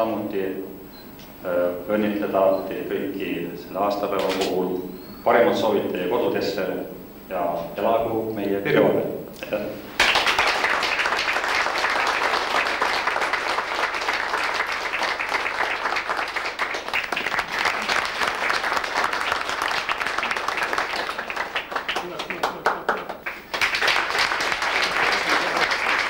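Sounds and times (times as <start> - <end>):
crowd applauding: 9.9 - 26.0.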